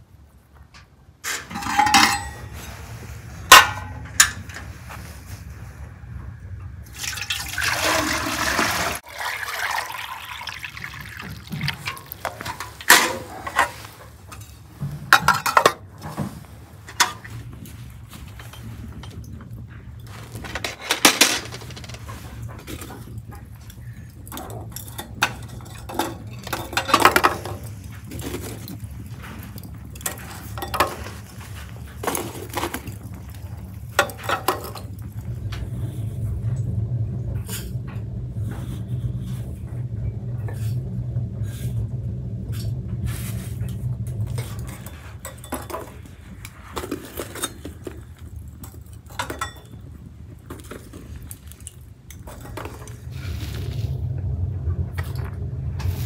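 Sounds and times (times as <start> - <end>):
dishes and utensils clattering: 1.2 - 4.9, 11.0 - 35.2, 43.7 - 53.1
low hum: 10.0 - 56.0.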